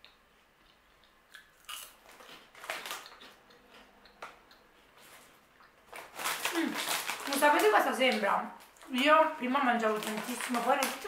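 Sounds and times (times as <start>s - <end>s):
person chewing crunchy snack: 0.0s - 7.2s.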